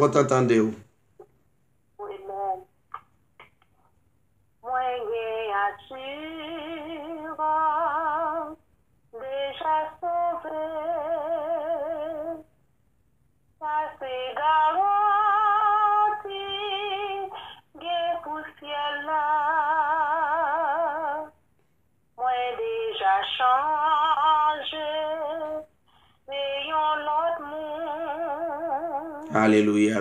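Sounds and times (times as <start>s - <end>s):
person singing slow melody: 26.3s - 29.7s.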